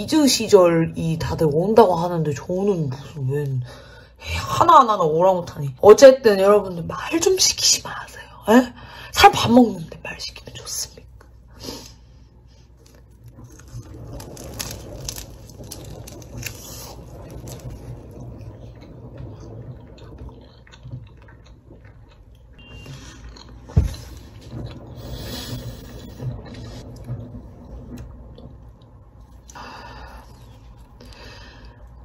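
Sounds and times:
biting and chewing: 0:12.6 - 0:27.3.

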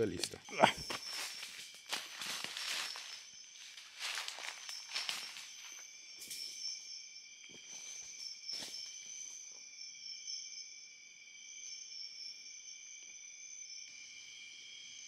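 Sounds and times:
crickets chirring: 0:00.0 - 0:15.0
footsteps in dry leaves: 0:00.7 - 0:05.8.

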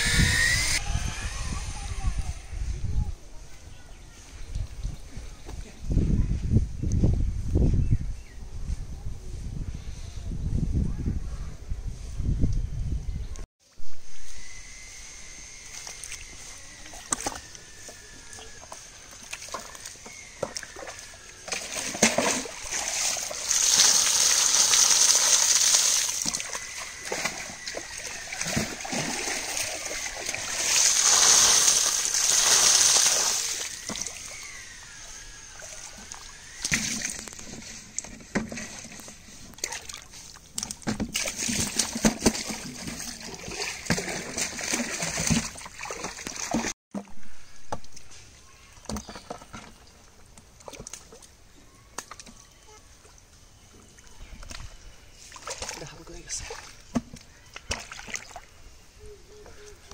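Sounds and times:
eels thrashing in muddy water: 0:19.1 - 0:34.4, 0:35.6 - 0:46.7, 0:55.3 - 0:55.8
water pouring from a bucket: 0:19.1 - 0:34.4, 0:35.6 - 0:46.7.

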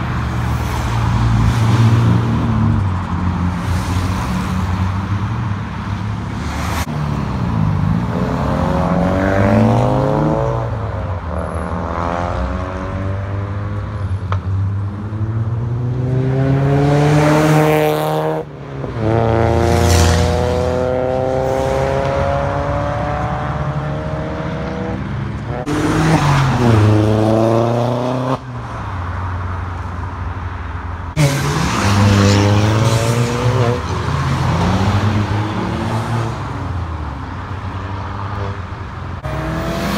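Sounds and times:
road noise: 0:00.0 - 0:39.9
cars accelerating past: 0:06.4 - 0:14.0, 0:14.6 - 0:28.5, 0:31.1 - 0:37.0, 0:39.2 - 0:39.9.

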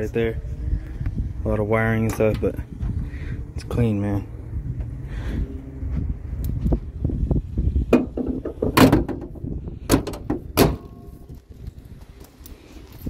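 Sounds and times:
car hood slamming shut: 0:07.9 - 0:11.0
sharp metal clunks: 0:07.9 - 0:11.2.

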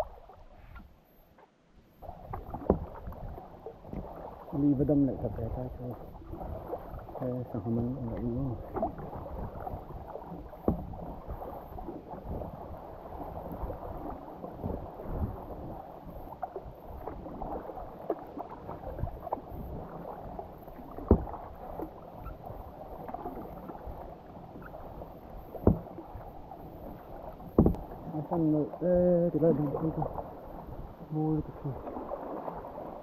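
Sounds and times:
water sloshing around kayak: 0:00.0 - 0:33.0
sharp knocks: 0:27.6 - 0:27.8.

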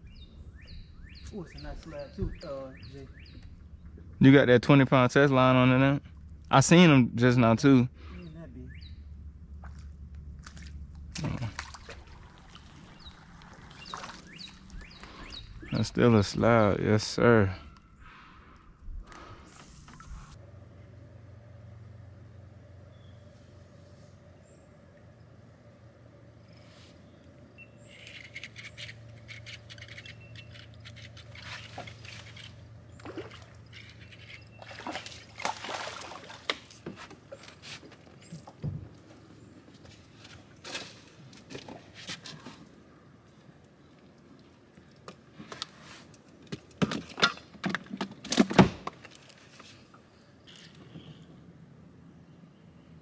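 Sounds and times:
bird chirping: 0:00.0 - 0:04.1, 0:08.2 - 0:09.2, 0:12.9 - 0:16.4, 0:22.0 - 0:25.5, 0:26.3 - 0:35.2
low steady hum: 0:03.0 - 0:42.0
handling clicks and rustles: 0:27.9 - 0:35.6, 0:43.4 - 0:51.1
fish splashing at water surface: 0:34.6 - 0:36.8.

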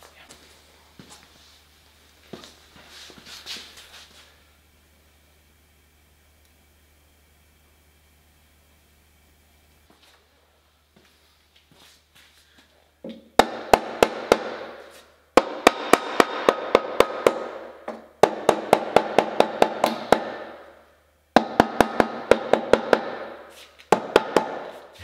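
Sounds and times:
mallet tapping sheet metal: 0:15.4 - 0:20.7, 0:21.4 - 0:24.7.

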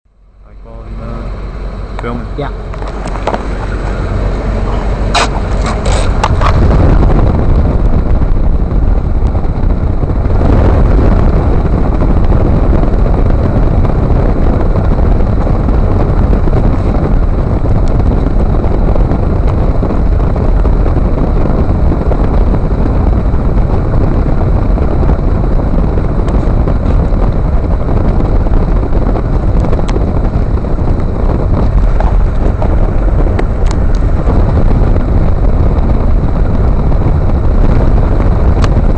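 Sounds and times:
road rumble: 0:00.0 - 0:38.9
wind buffeting on microphone: 0:00.3 - 0:38.9.

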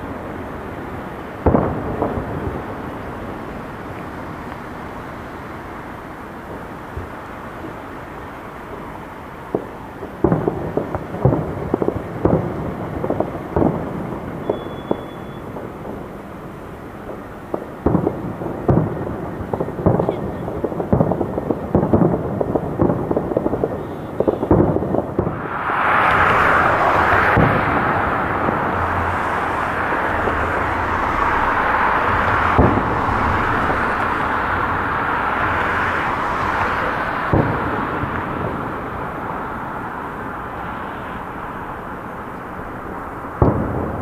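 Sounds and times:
fireworks bursting: 0:00.0 - 0:44.0
loud rushing noise: 0:24.5 - 0:44.0.

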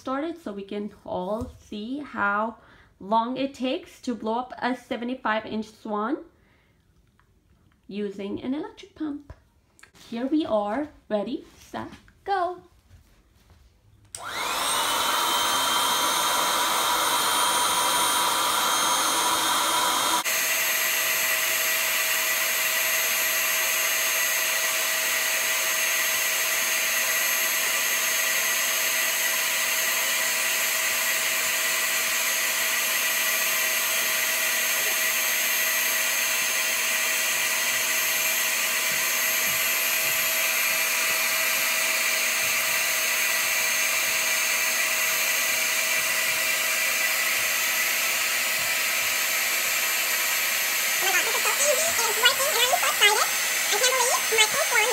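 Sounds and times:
electric air pump drone: 0:14.2 - 0:54.9.

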